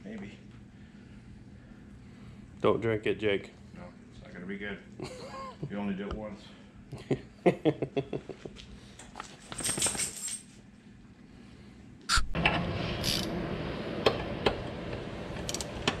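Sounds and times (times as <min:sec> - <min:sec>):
metal clinks and rattles: 0:09.0 - 0:10.6
ratchet wrench clicking: 0:13.0 - 0:13.3.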